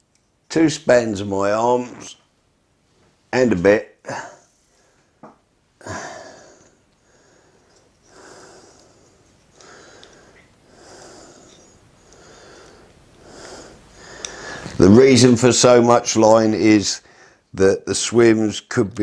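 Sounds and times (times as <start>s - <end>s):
man breathing through nose: 5.8s - 14.8s, 17.0s - 17.5s
man sniffing: 5.8s - 14.8s.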